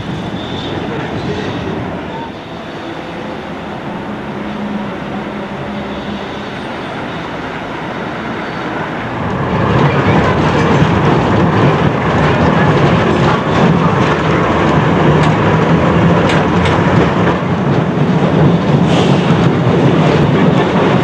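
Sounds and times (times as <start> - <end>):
tram rattling: 0.0 - 21.0
tram rumbling on rails: 0.0 - 21.0.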